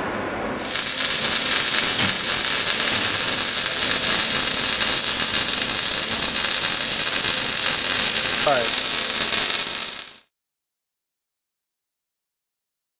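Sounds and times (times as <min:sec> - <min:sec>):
arc welding crackling hiss: 0:00.6 - 0:10.3.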